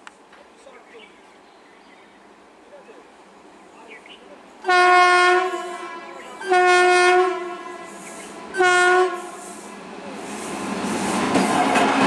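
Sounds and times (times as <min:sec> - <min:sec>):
locomotive horn blasts: 0:04.6 - 0:09.6
train running rumble: 0:04.7 - 0:12.0.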